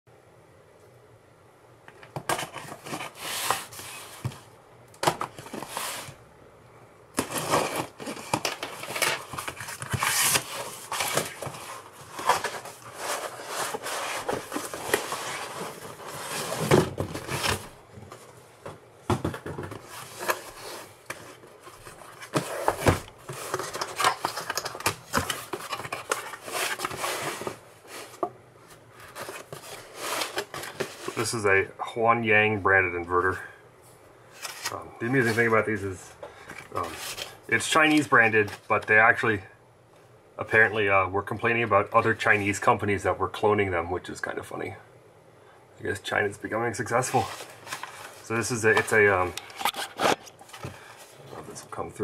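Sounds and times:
foam and paper rustling: 7.2 - 17.8, 19.7 - 28.2, 29.0 - 31.4, 46.9 - 51.5
cardboard flaps scraping: 7.2 - 18.3, 19.1 - 28.3.

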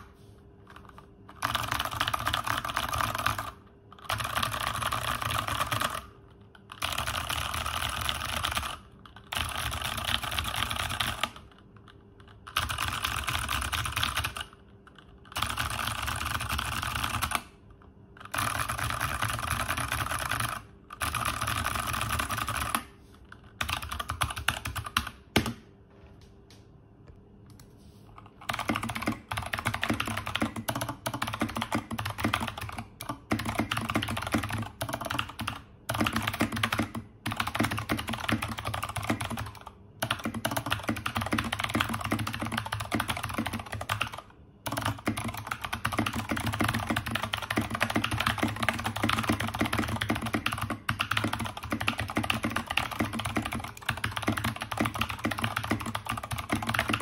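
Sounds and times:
fast typing on mechanical keyboard: 0.0 - 25.6, 28.2 - 57.0.

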